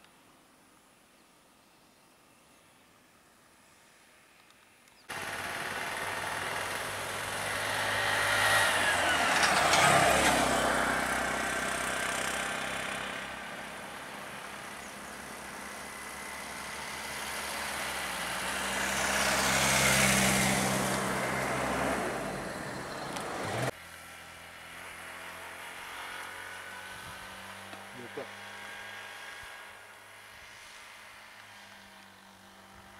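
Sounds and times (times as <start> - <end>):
steady engine hum: 5.1 - 23.8
vehicles driving past: 5.1 - 32.9.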